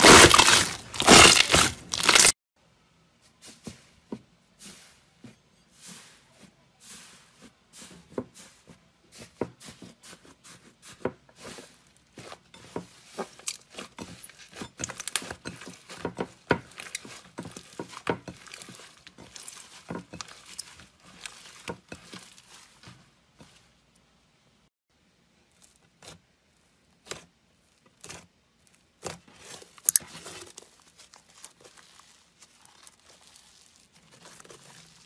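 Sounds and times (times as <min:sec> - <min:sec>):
slime popping and crackling: 0:00.0 - 0:02.3, 0:29.4 - 0:35.0.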